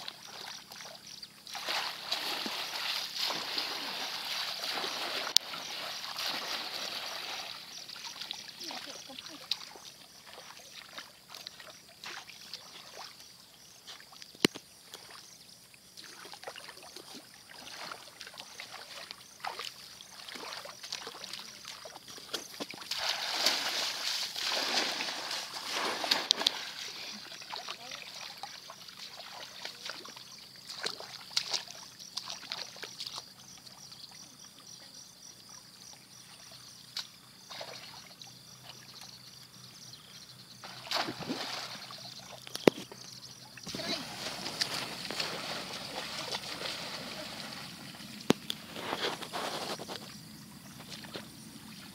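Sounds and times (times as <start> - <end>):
shallow water splashing: 0.0 - 13.2, 16.1 - 33.3, 40.6 - 49.8.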